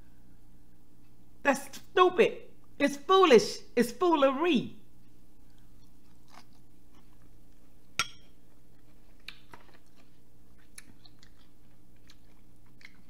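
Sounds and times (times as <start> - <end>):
steady low hum: 0.0 - 13.0
person chewing salad: 5.4 - 13.0.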